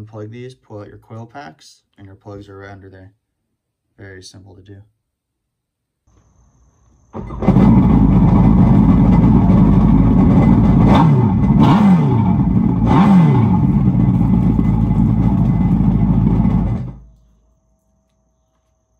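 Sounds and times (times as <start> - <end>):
watercraft engine idling and revving: 7.3 - 17.0.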